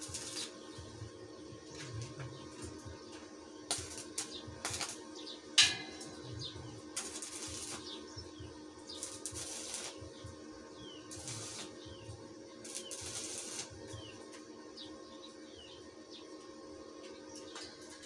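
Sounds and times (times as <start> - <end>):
welding arc crackle: 0.0 - 1.1, 3.7 - 10.4, 11.0 - 14.4
small birds chirping: 0.0 - 18.0
steady low hum: 0.0 - 18.0.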